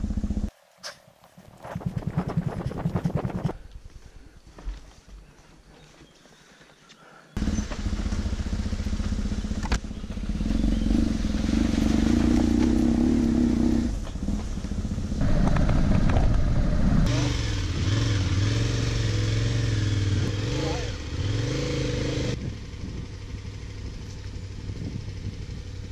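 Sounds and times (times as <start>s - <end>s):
motorcycle engine running: 0.0s - 0.5s, 7.4s - 25.9s.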